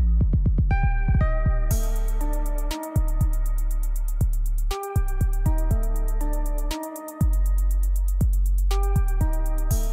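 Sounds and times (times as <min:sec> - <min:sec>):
deep bass hits: 0:00.0 - 0:06.4
synth melody: 0:00.8 - 0:09.9.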